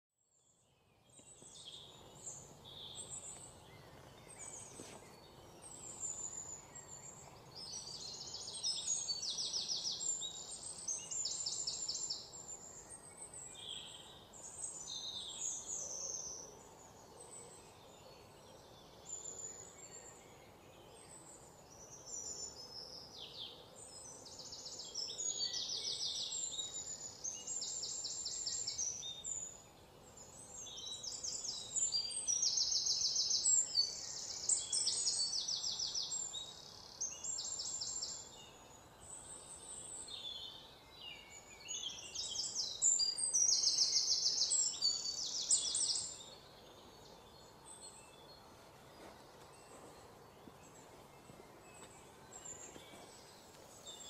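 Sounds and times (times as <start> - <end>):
faint steady hiss: 0.4 - 54.0.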